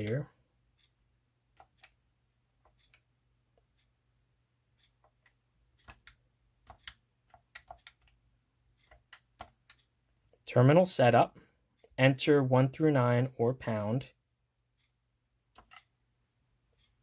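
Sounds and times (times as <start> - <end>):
keypad keys clicking: 5.0 - 8.2, 8.8 - 9.8, 15.5 - 15.9.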